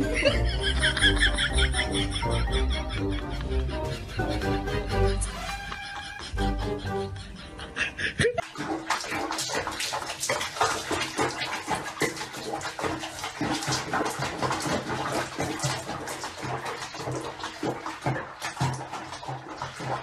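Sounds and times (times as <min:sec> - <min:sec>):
water splashing in plastic basin: 0:08.4 - 0:20.0.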